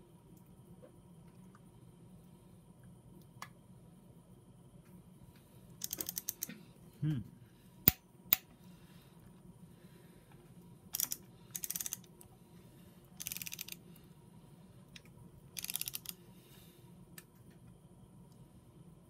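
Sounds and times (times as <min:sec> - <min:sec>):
torque wrench ratchet clicking: 0:05.8 - 0:06.5, 0:11.0 - 0:12.1, 0:13.2 - 0:13.8, 0:15.6 - 0:16.2.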